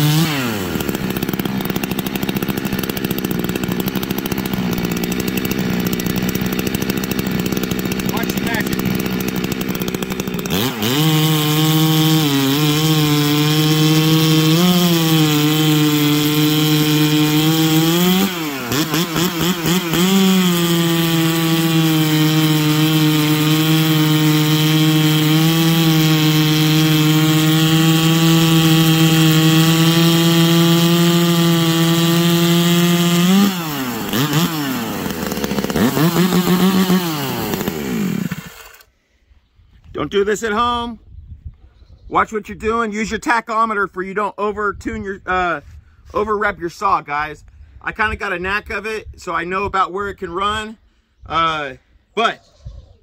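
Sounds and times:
chainsaw cutting log: 0.0 - 38.9.

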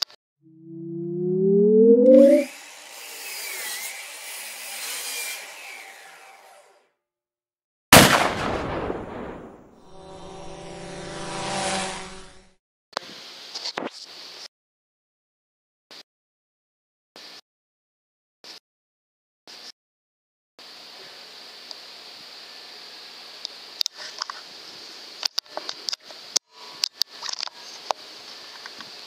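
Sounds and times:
loud boom: 8.0 - 10.0.

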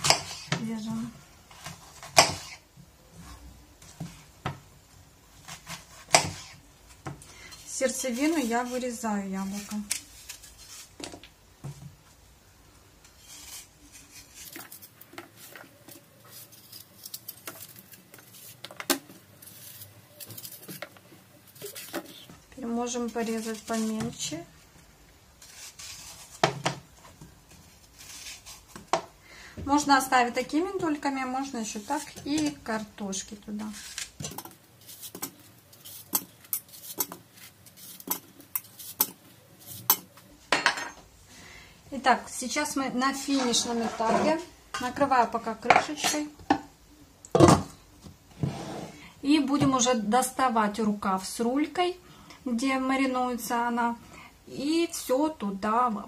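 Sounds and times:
knife slicing and scraping apple: 0.0 - 4.3, 5.4 - 11.1, 13.0 - 22.3, 22.9 - 24.4, 25.4 - 29.1, 31.6 - 40.1, 43.0 - 45.0.

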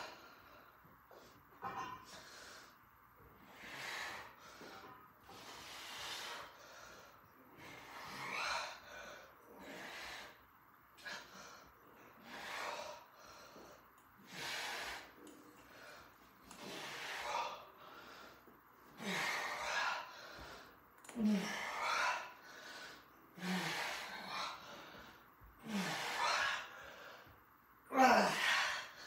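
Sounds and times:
man breathing hard: 2.0 - 10.4, 11.0 - 27.4.

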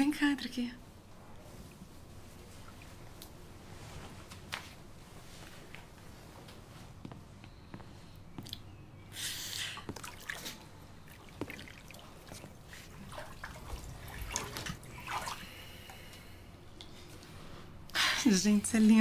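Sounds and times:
water splashing in a tub: 9.8 - 16.1.

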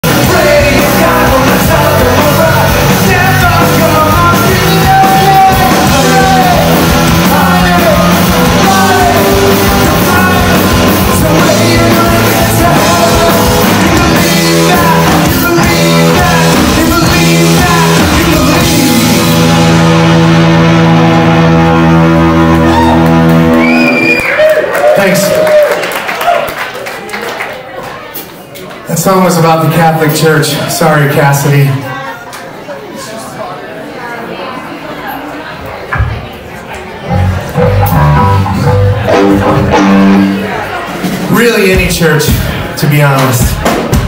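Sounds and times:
person singing: 0.0 - 23.6
live rock band playing: 0.0 - 24.3, 37.0 - 44.0.

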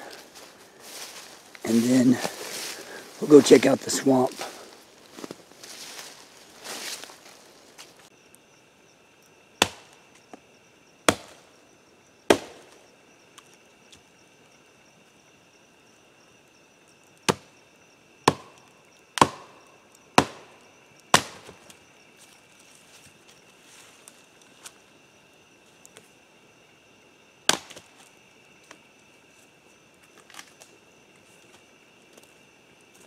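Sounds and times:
firewood chopping strikes: 9.6 - 10.0, 11.1 - 11.4, 12.3 - 12.8, 17.3 - 17.5, 18.3 - 18.6, 19.2 - 21.7, 27.5 - 27.9.

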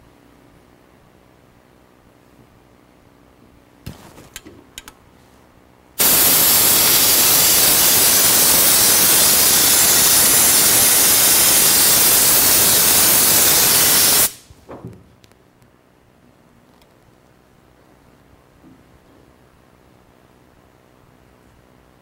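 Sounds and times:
spray gun hissing: 6.0 - 14.5.

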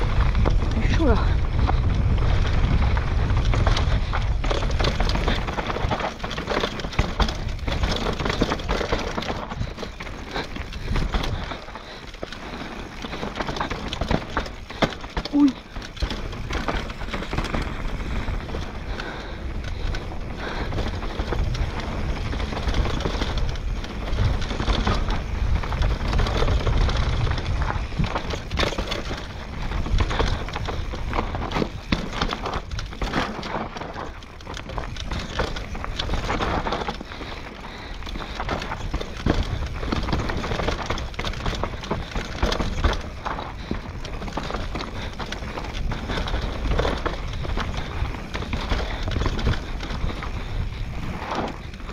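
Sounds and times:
deep rumble: 0.0 - 6.0
bike rattling: 0.0 - 51.9
bike tyres clattering over rocks: 0.0 - 51.9.

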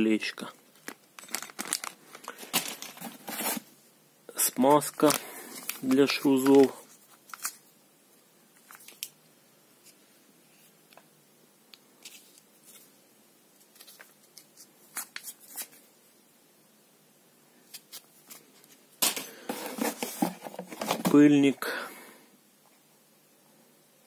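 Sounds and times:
foil sachet crinkling: 0.7 - 3.6.

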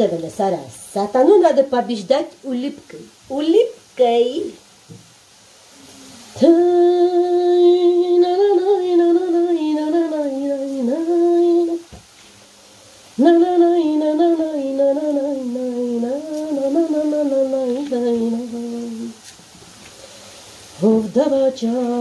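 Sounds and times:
woman humming a slow melody: 5.8 - 11.8, 13.2 - 19.2.

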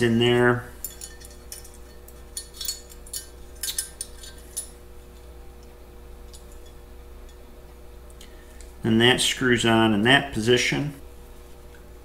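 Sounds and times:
faint steady hum: 0.0 - 12.0
small metal parts clicking: 2.4 - 4.7.

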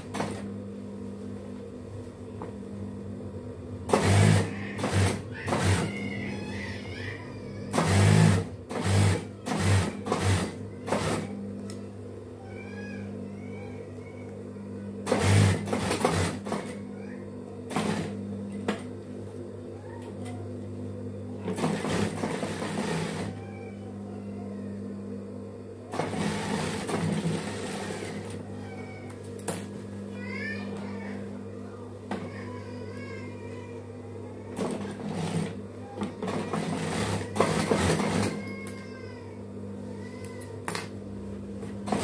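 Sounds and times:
motor humming: 0.0 - 42.0
sewing machine stitching: 3.9 - 6.0, 7.7 - 11.3, 15.0 - 16.8, 17.7 - 18.2, 21.4 - 23.4, 25.9 - 28.4, 36.2 - 38.4.

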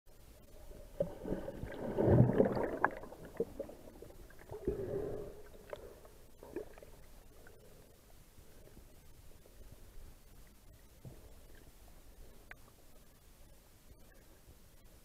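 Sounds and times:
underwater churning water and bubbles: 0.2 - 8.7.

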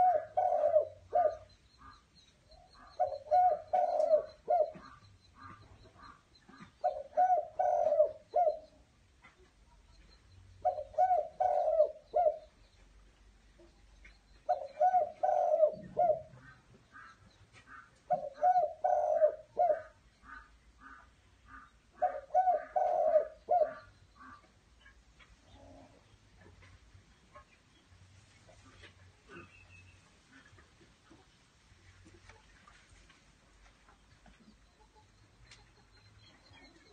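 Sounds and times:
dove cooing: 0.0 - 2.0, 2.7 - 8.8, 10.6 - 12.6, 14.4 - 17.2, 17.8 - 21.1, 22.0 - 26.7.

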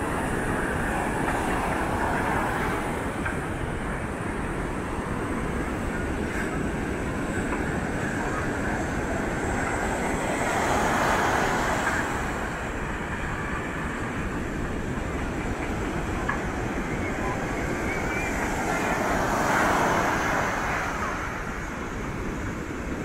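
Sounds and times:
waves breaking on a beach: 0.0 - 23.0
wind rumbling on microphone: 0.0 - 23.0.

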